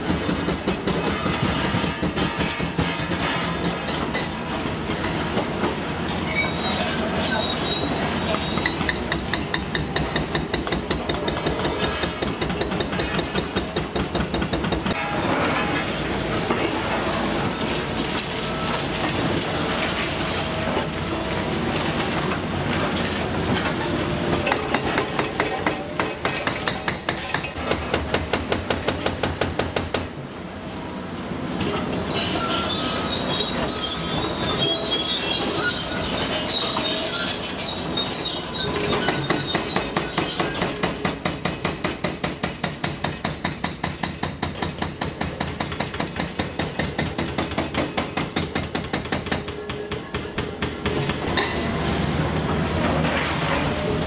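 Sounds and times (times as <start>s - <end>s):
excavator running: 49.5s - 54.0s.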